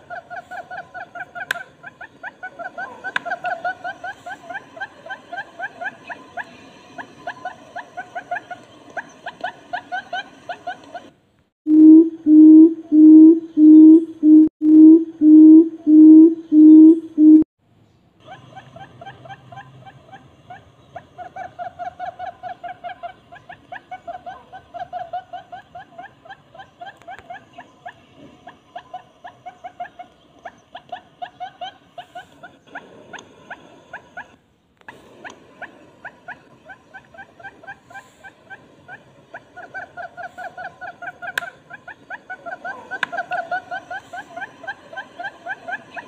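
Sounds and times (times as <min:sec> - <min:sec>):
bird purring call: 0:11.7 - 0:17.4.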